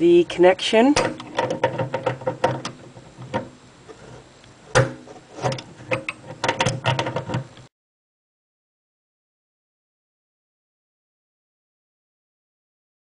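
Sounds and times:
wrench metal clicks and knocks: 1.0s - 3.5s, 4.7s - 7.6s.

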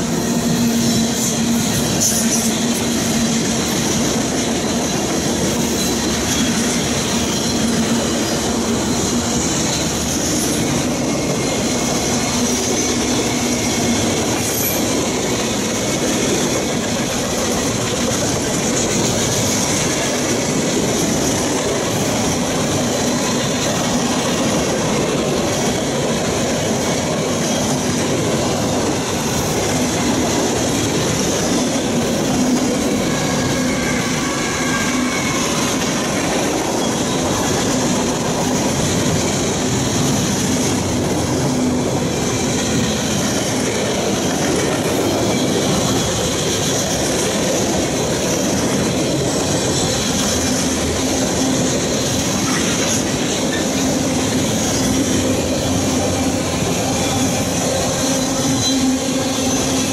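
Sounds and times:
train wheels rumbling and clattering: 0.0s - 59.9s
high wheel squeal: 30.7s - 44.0s, 44.7s - 59.9s.

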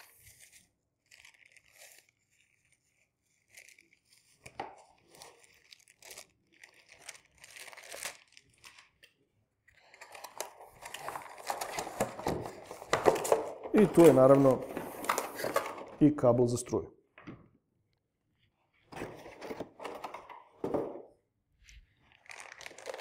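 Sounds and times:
plastic packaging crinkling: 0.0s - 9.2s, 9.8s - 16.0s, 22.0s - 23.0s.

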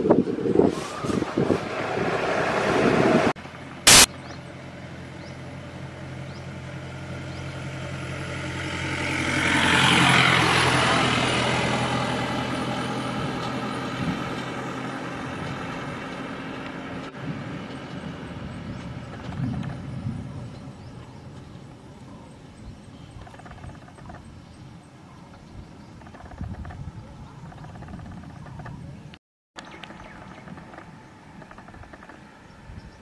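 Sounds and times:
low engine hum: 0.0s - 33.0s
vehicle passing by: 0.2s - 22.6s.

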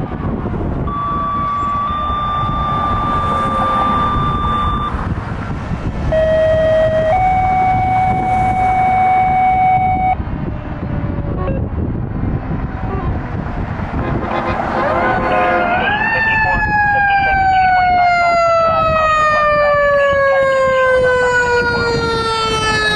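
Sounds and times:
fire truck engine and road rumble: 0.0s - 22.9s
high warning tone: 0.8s - 5.2s, 6.1s - 10.2s, 14.0s - 17.6s
long horn-like tone: 14.0s - 15.9s.

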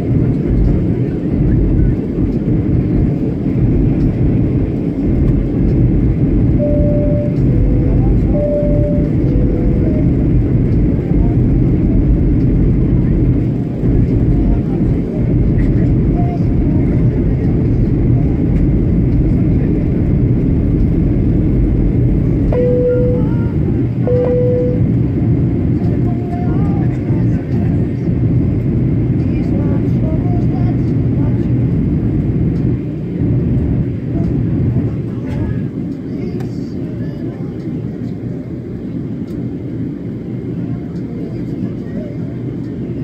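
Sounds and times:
airliner cabin rumble: 0.0s - 43.0s
jet engine roar and rushing air: 0.0s - 43.0s
faint two-note tone: 6.6s - 10.3s, 22.5s - 24.9s.

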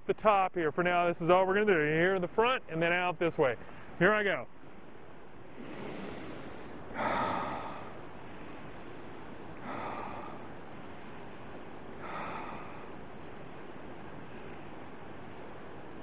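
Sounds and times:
man breathing deeply: 5.4s - 15.6s.

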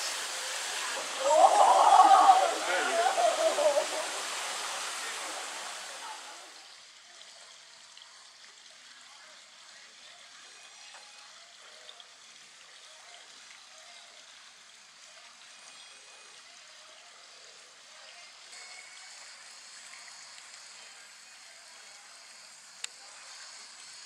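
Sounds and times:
distant voices: 0.0s - 6.6s
water trickling: 0.0s - 24.0s.

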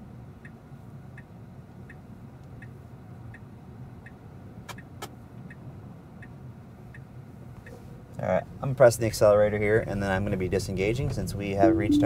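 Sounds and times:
turn signal ticking: 0.4s - 7.8s
low steady hum: 11.4s - 12.0s.

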